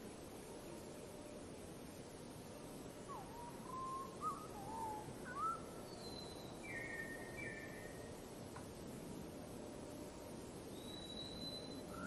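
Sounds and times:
steady background hiss: 0.0s - 12.0s
bird whistling song: 3.1s - 8.1s, 10.7s - 12.0s.

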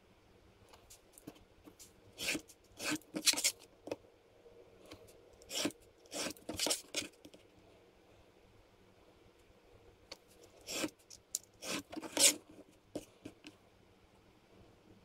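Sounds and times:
craft knife cutting paper: 2.2s - 3.6s, 5.4s - 7.2s, 10.6s - 11.0s, 11.6s - 12.4s.

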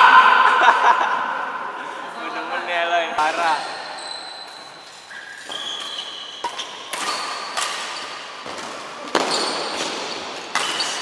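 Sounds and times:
shoes squeaking on court floor: 3.4s - 11.0s
racket striking shuttlecock: 5.8s - 11.0s.

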